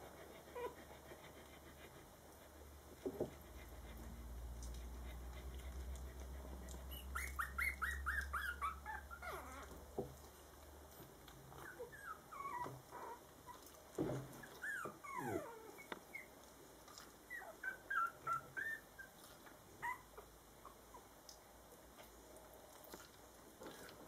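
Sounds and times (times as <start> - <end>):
puppies whimpering and squeaking: 0.5 - 0.8, 6.1 - 9.8, 11.6 - 13.6, 14.4 - 16.3, 17.3 - 19.2, 19.8 - 21.1.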